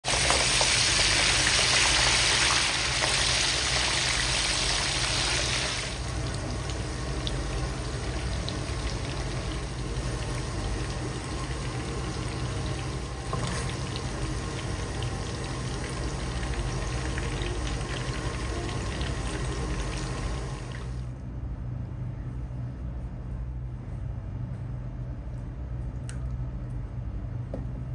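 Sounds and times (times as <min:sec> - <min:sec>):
food deep-frying in oil: 0:00.0 - 0:21.1.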